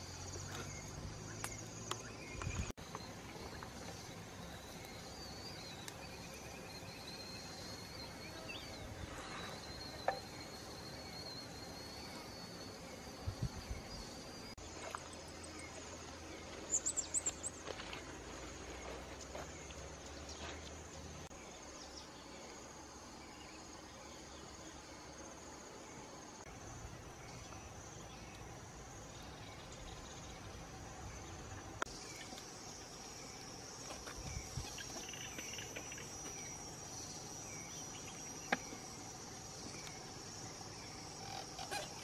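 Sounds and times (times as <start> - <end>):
insects buzzing: 0.0 - 42.0.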